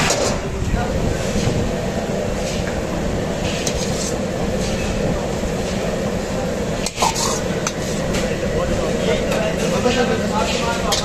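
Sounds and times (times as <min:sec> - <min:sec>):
gas burner: 0:00.0 - 0:11.0
kitchen rumbling noise: 0:00.0 - 0:11.0
wok scraping and tapping plate: 0:03.4 - 0:05.0.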